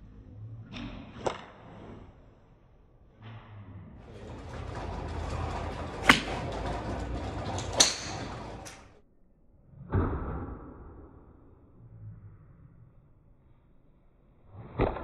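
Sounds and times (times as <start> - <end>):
golf balls struck: 7.6 - 8.8.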